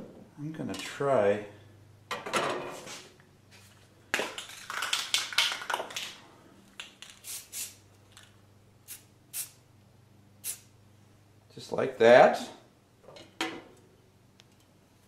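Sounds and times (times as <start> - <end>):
spray paint can hissing: 7.0 - 7.8, 8.9 - 9.6, 10.4 - 10.7.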